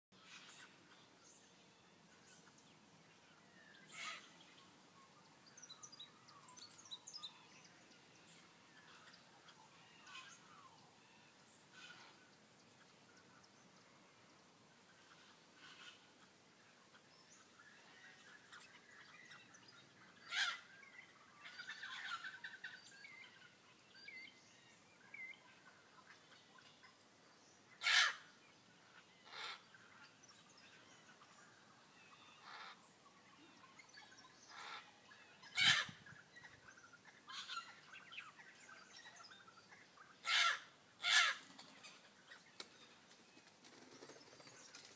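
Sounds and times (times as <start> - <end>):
faint bird chirping: 0.2 - 44.9
parrots calling: 20.2 - 20.7, 27.8 - 28.3, 35.5 - 36.0, 37.3 - 37.7, 40.2 - 41.4.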